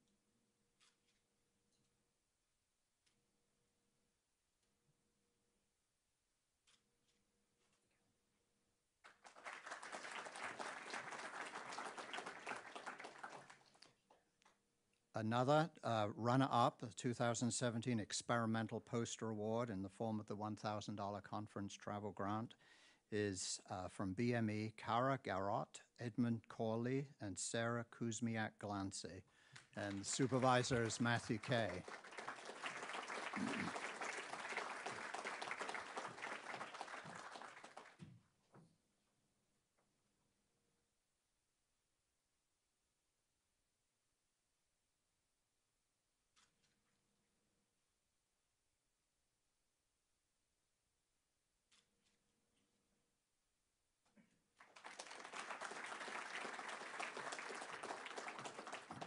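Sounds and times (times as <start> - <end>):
audience applauding: 9.1 - 13.8, 29.8 - 38.0, 54.6 - 59.0.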